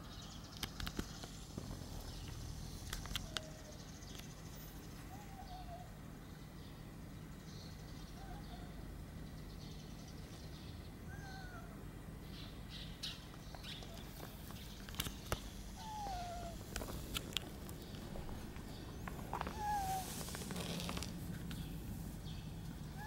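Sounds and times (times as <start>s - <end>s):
cat meowing: 11.1s - 11.8s, 15.8s - 16.7s, 19.3s - 21.1s.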